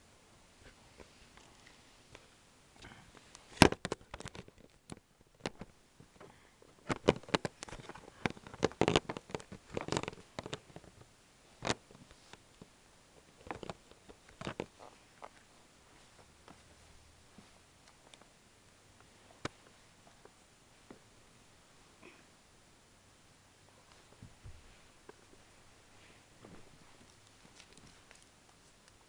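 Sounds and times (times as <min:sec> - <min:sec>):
hands clicking and tapping things: 0:06.8 - 0:11.0.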